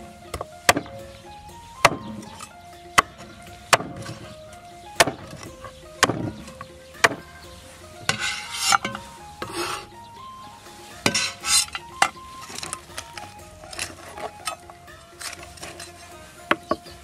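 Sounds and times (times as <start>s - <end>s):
cleaver chopping on wooden board: 0.3s - 1.0s, 1.8s - 4.3s, 4.9s - 7.3s
blade scraping board: 8.1s - 9.9s.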